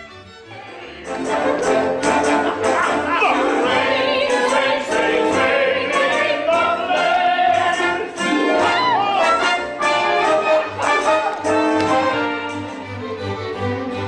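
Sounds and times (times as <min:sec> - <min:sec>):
orchestra playing: 0:00.0 - 0:14.0
voices singing together: 0:00.5 - 0:11.5.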